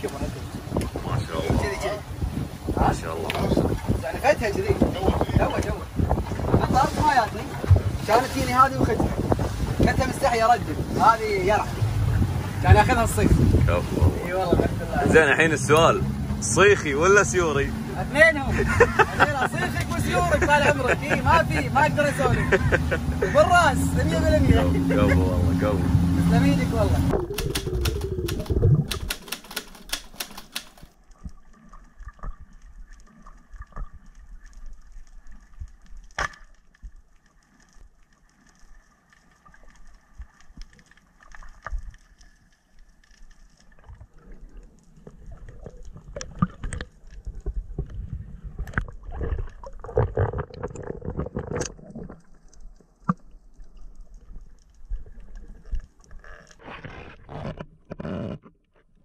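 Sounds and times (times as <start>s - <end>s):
wind noise: 0.0s - 15.5s
boat motor: 19.1s - 30.6s
faint underwater crackling: 26.8s - 59.0s
sharp underwater clicks: 27.1s - 31.4s.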